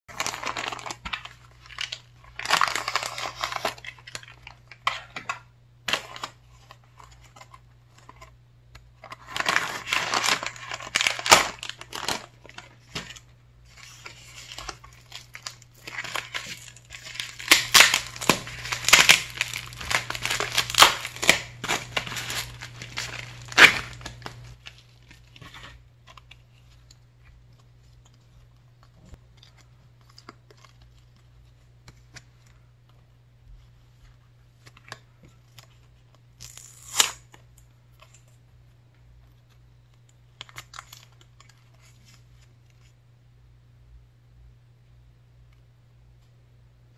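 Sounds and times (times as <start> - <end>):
plastic mailer crinkling: 0.1 - 32.7.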